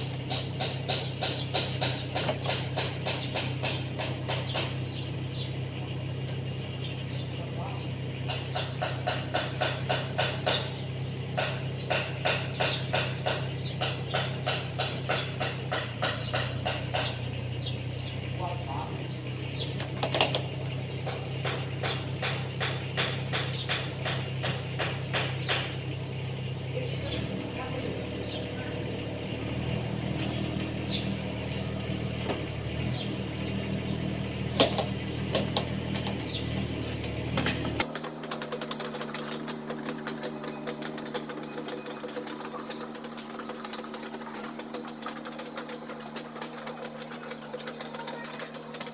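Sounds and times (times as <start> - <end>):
machine knocking: 0.0 - 5.5, 8.1 - 17.7, 19.6 - 26.0, 34.5 - 48.9
diesel engine running: 0.0 - 48.9
regular clicking: 37.0 - 48.9.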